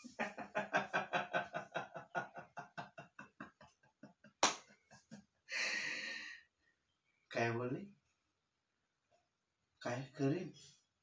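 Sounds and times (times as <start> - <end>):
man laughing: 0.0 - 5.3.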